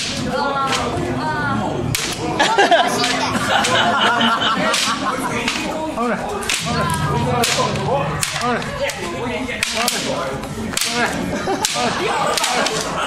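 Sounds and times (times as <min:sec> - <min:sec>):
voices of onlookers: 0:00.0 - 0:13.0
sword striking armour: 0:06.5 - 0:09.0.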